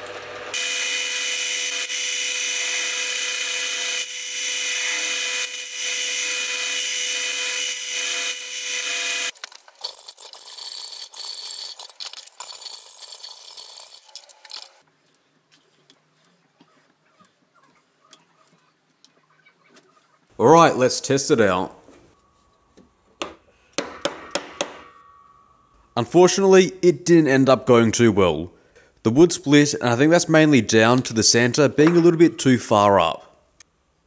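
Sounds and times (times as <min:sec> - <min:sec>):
lathe whining tones: 0:00.0 - 0:09.3.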